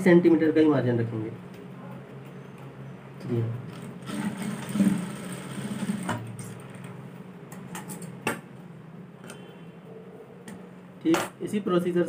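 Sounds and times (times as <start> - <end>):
steady hum: 0.0 - 12.0
sewing machine stitching: 3.7 - 6.5.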